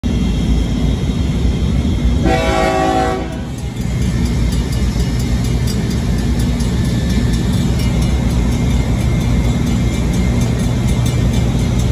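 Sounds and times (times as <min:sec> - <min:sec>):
locomotive horn blast: 0:02.2 - 0:03.5.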